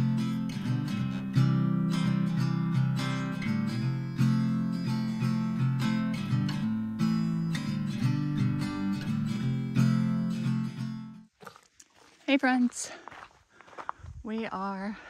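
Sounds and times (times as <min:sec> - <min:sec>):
acoustic guitar strumming: 0:00.0 - 0:11.3.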